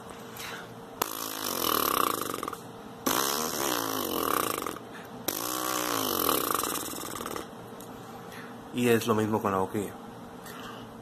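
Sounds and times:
lips buzzing gliding down: 1.0s - 7.5s.

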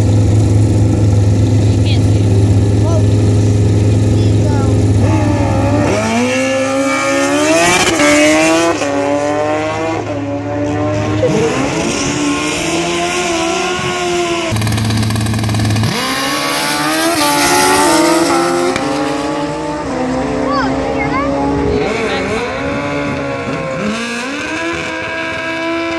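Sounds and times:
drag racing cars accelerating: 0.0s - 25.9s.

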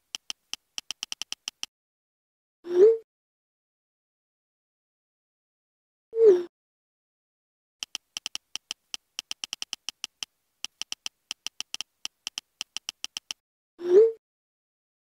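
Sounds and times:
phone keyboard key clicks: 0.0s - 1.7s, 7.8s - 13.4s.

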